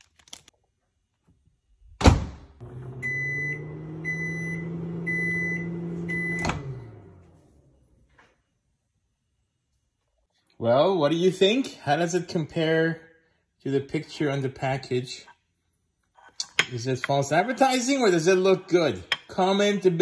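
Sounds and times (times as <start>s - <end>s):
microwave humming: 2.6s - 8.0s
microwave beeps: 2.7s - 7.0s.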